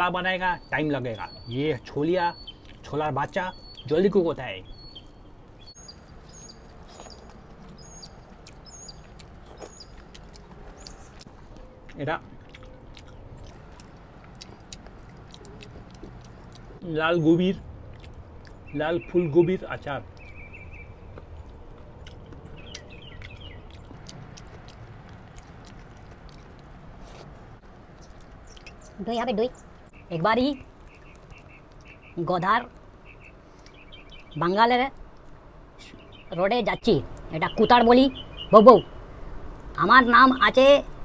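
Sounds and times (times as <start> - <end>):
bird chirping: 0.0 - 41.0
outdoor background: 0.0 - 41.0
chewing with wet mouth clicks: 2.3 - 3.8, 5.7 - 16.8, 17.5 - 18.8, 20.0 - 29.0, 29.6 - 35.6
soft clicks of eating by hand: 6.9 - 16.8, 30.8 - 32.0, 35.0 - 35.4.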